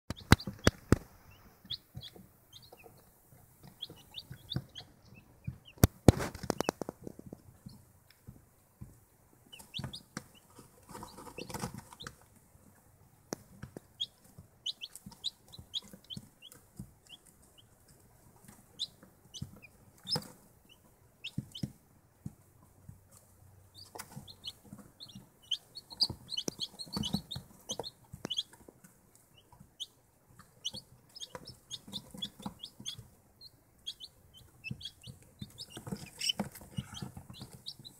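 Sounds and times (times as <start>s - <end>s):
chicks peeping: 0.1s - 37.9s.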